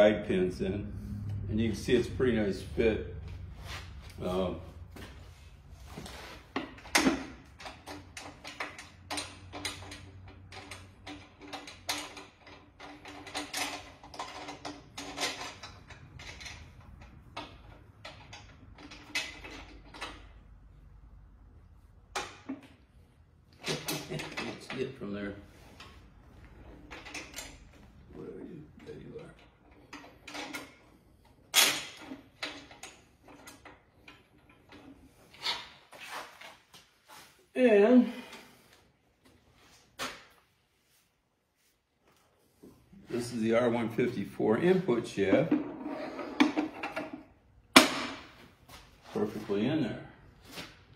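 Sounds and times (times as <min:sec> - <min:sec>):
metallic clicks and clunks: 0:06.6 - 0:20.4.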